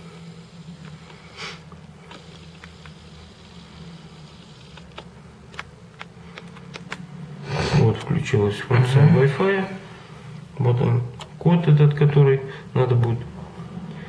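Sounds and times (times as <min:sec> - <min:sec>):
low buzzing hum: 0:00.0 - 0:14.0
man speaking: 0:07.7 - 0:09.8, 0:10.6 - 0:13.4.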